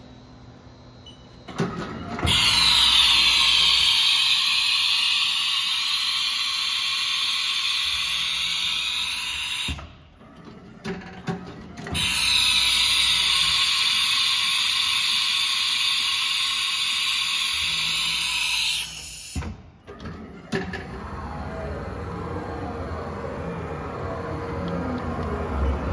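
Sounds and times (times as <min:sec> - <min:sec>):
router machine whine and hiss: 0:02.2 - 0:09.8, 0:11.9 - 0:19.4.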